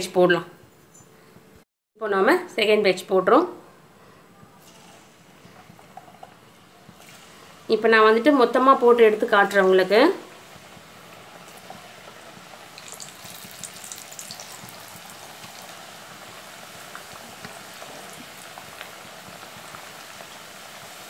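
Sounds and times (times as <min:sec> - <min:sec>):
crackers sizzling in hot oil: 0:04.7 - 0:21.0.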